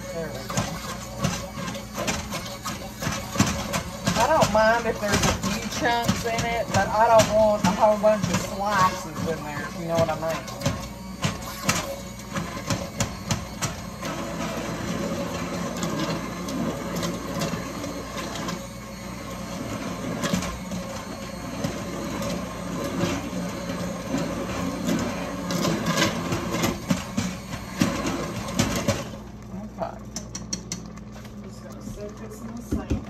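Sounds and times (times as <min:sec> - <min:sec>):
immersion blender running: 0:00.0 - 0:33.0
knocks and clicks in bowl: 0:00.5 - 0:13.8, 0:30.1 - 0:33.0.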